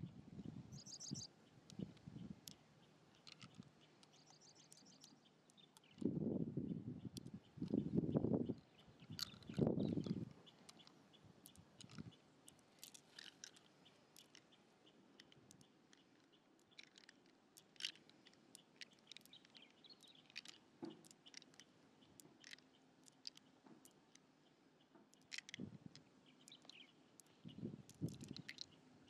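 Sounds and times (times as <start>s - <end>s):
wet clicks and squelches: 2.4s - 6.1s, 9.0s - 14.6s, 15.2s - 24.3s, 25.0s - 28.8s.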